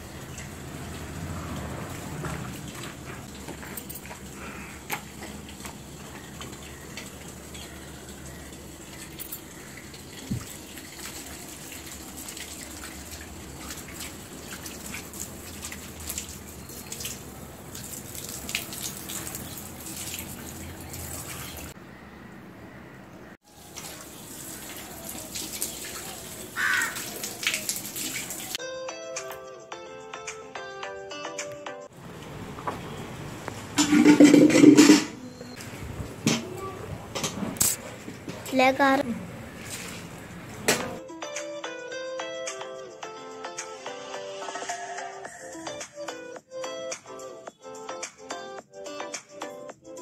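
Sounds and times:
hand-washing clothes splashes: 0.0s - 21.8s, 23.4s - 28.6s, 37.4s - 41.0s
hose water splashing on concrete: 0.0s - 21.8s, 23.4s - 28.6s, 38.8s - 41.0s.

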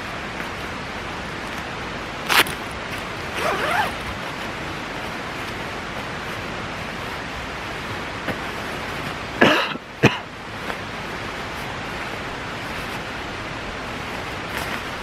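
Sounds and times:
sleeping bag rustling: 2.2s - 6.4s, 11.4s - 15.0s.

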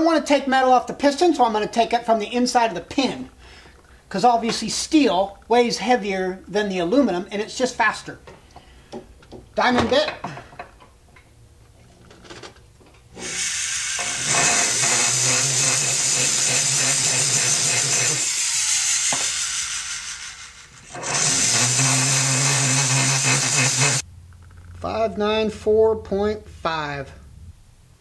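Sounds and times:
rotary tool grinding steel: 13.1s - 24.0s.

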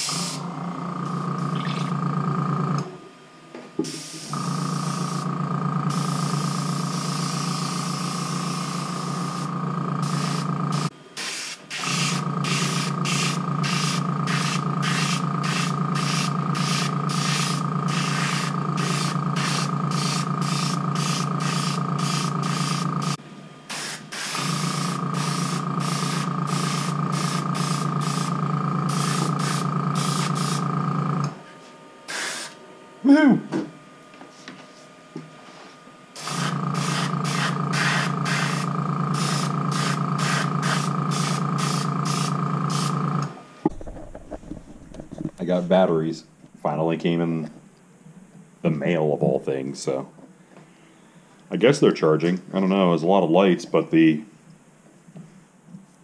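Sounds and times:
compressor humming: 0.0s - 55.8s
airbrush spraying hiss: 3.8s - 5.2s, 5.9s - 30.6s, 32.1s - 32.6s, 36.2s - 43.0s.

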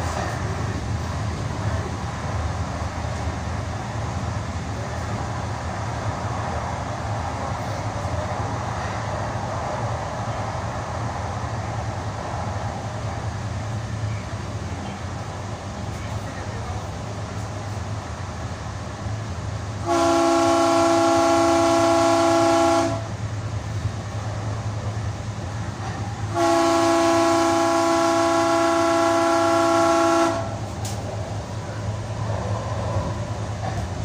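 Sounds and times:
train rumble: 0.0s - 34.0s
train horn blasts: 19.8s - 23.2s, 26.3s - 30.6s.

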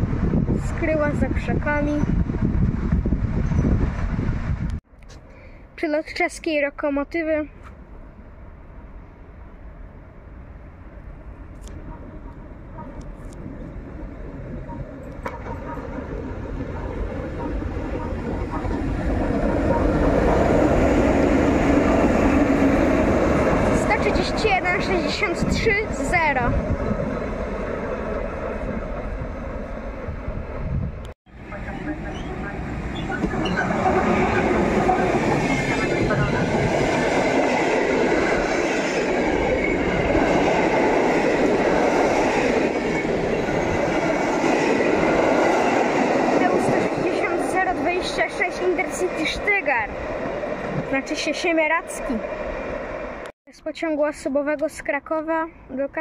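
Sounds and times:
electric locomotive passing: 6.8s - 53.3s
train wheels rushing on rails: 11.6s - 53.3s.

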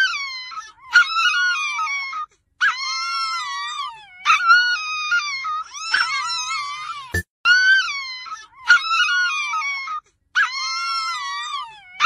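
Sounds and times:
dog howling: 0.0s - 12.0s.

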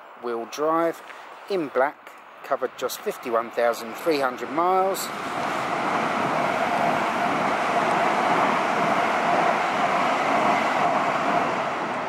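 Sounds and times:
passenger train rushing past: 2.6s - 12.0s.

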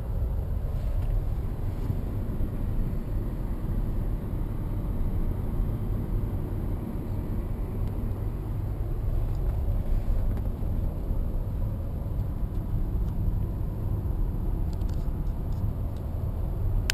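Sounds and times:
road and tyre rumble: 0.0s - 16.9s.

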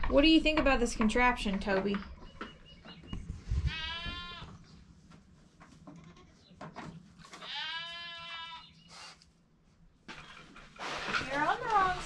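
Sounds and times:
goat bleating: 3.7s - 4.6s, 5.9s - 6.5s, 7.3s - 8.7s.

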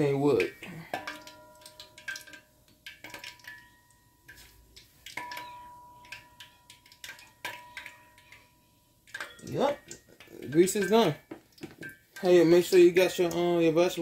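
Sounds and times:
crackling in hot oil: 0.0s - 14.0s.

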